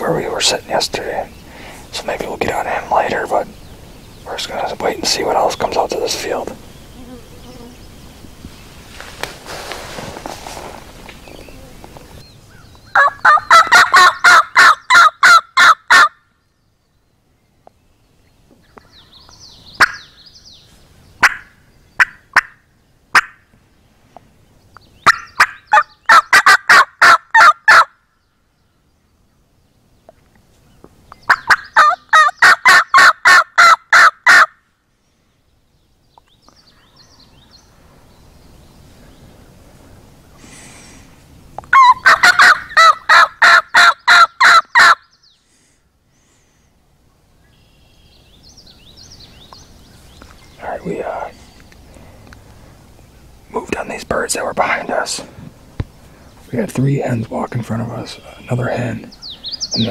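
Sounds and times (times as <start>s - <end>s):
turkey yelping: 12.9s - 16.2s, 21.2s - 22.6s, 25.0s - 27.9s, 31.3s - 34.5s, 41.7s - 45.0s.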